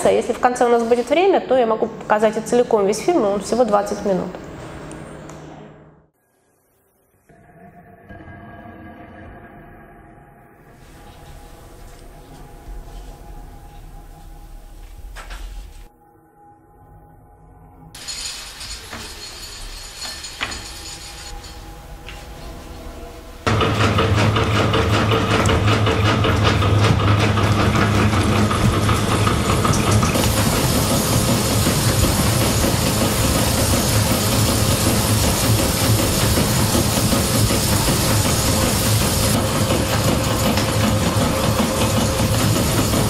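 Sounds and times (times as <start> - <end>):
loom mechanical clatter: 18.0 - 21.7, 23.5 - 43.0.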